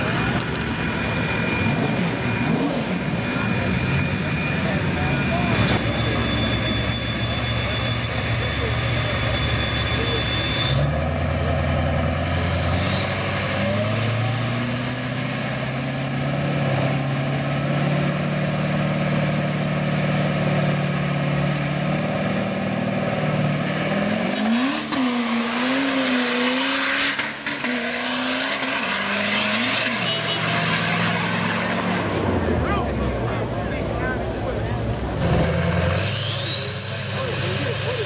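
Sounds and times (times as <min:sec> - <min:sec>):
engine accelerating: 0:00.0 - 0:38.0
turbo whistle: 0:05.8 - 0:10.8, 0:36.2 - 0:37.6.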